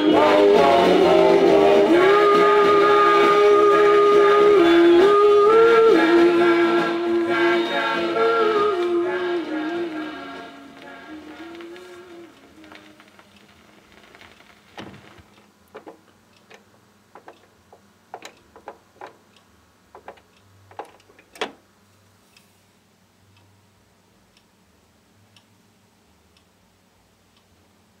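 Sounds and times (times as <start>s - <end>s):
faint record ticks: 1.8s - 28.0s
vinyl surface pops and clicks: 10.8s - 16.6s.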